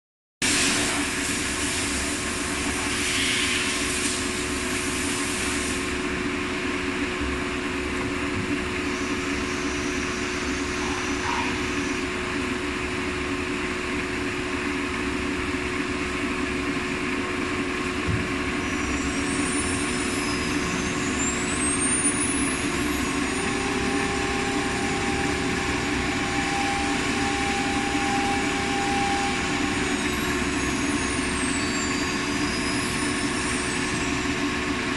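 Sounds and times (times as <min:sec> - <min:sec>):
machine hum: 0:10.4 - 0:34.9
second steady tone: 0:18.7 - 0:34.5
high whistling glides: 0:18.9 - 0:34.4.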